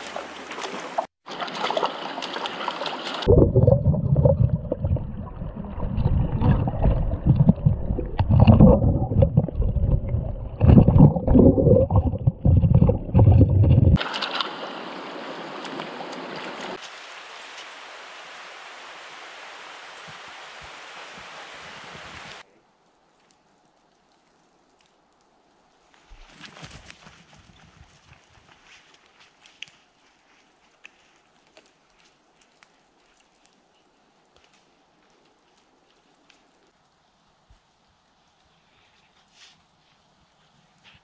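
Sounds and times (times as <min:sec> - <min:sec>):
underwater gurgling knocks: 0:03.3 - 0:14.0
stream rushing over rocks: 0:14.0 - 0:22.5.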